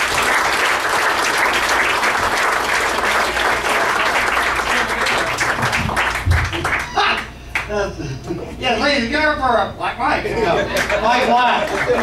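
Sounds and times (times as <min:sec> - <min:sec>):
audience clapping: 0:00.0 - 0:07.8, 0:10.7 - 0:12.0.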